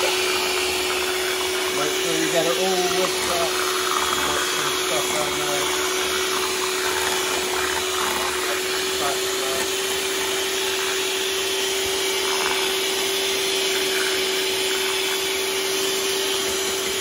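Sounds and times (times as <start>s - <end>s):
electric whisk whirring: 0.0s - 17.0s.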